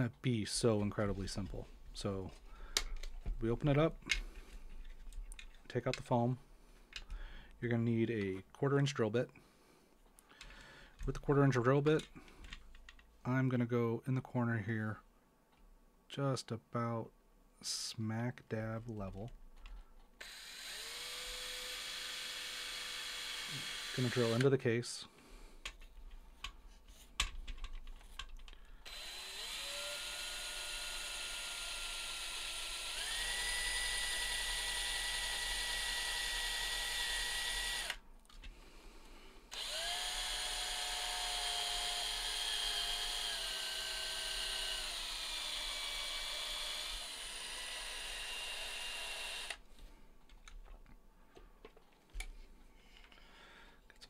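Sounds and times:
power drill drilling: 20.2s - 24.5s, 28.8s - 38.0s, 39.5s - 49.6s.

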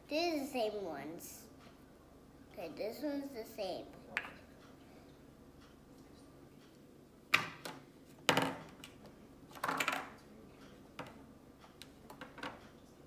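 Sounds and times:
plastic tubs knocking on table: 7.3s - 8.8s, 9.6s - 10.2s.

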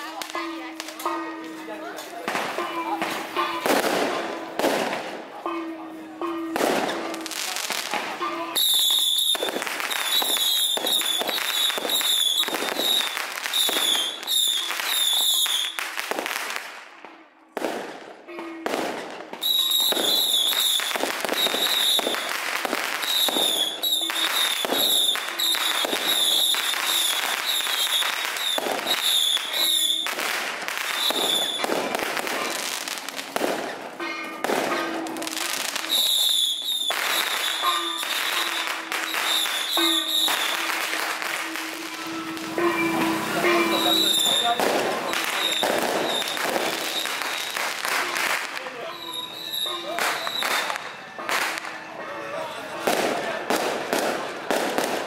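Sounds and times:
firecrackers crackling: 0.0s - 55.0s.

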